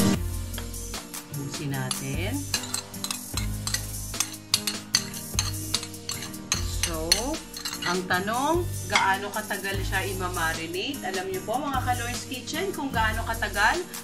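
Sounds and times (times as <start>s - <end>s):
metal spoon clinking on plate: 1.9s - 8.1s
spoon scraping ceramic plate: 1.9s - 8.2s.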